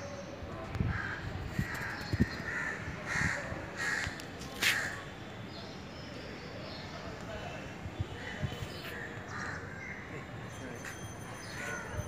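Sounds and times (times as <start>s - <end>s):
crows cawing: 0.9s - 5.0s, 9.3s - 10.0s.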